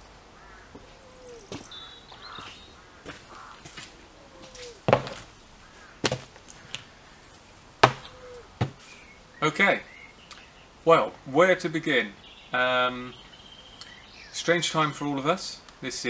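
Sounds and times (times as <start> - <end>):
plastic pots knocking on wooden bench: 7.8 - 8.8.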